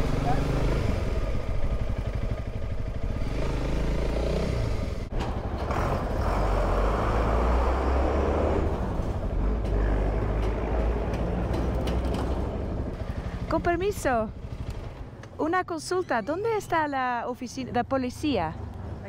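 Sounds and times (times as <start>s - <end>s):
motorcycle engine running: 0.0s - 5.7s, 10.9s - 15.2s
large vehicle engine rumbling: 0.0s - 19.0s
roadside traffic: 0.0s - 19.0s.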